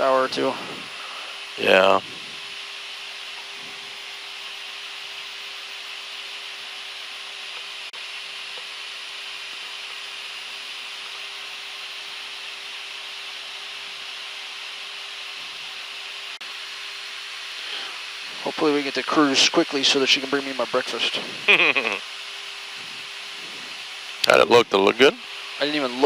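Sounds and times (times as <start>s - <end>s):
steady hum: 0.0s - 11.6s, 20.6s - 26.0s.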